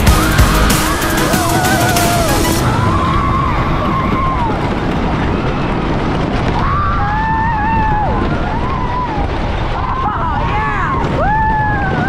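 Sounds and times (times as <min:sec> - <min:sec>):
riders yelling: 0:00.0 - 0:04.6
wind rushing over microphone: 0:00.0 - 0:12.0.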